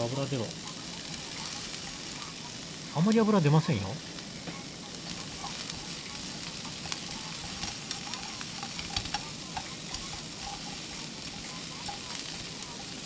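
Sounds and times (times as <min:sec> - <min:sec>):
meat and vegetables sizzling: 0:00.0 - 0:13.0
chopsticks clicking against pan: 0:04.8 - 0:13.0.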